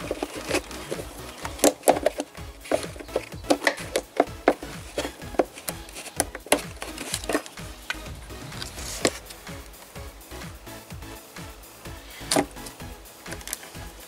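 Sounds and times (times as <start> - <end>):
hands clicking plastic hose fittings: 0.0 - 8.0, 12.2 - 13.7
background music: 0.0 - 14.0.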